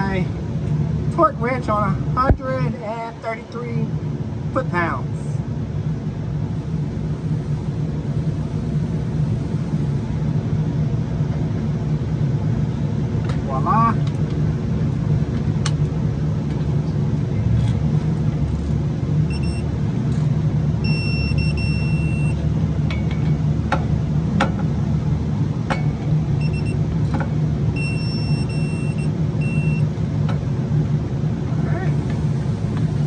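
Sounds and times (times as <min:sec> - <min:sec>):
low engine rumble: 0:00.0 - 0:33.0
torque wrench beeping: 0:20.8 - 0:22.4, 0:27.8 - 0:29.8.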